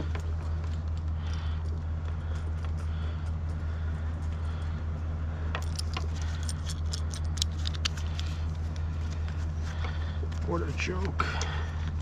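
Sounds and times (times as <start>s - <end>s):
steady low hum: 0.0s - 12.0s
metal hardware clinking: 5.5s - 8.2s.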